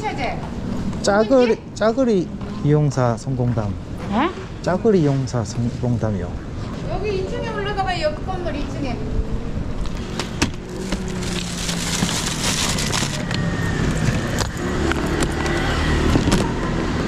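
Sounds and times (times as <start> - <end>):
street traffic: 0.0 - 17.0.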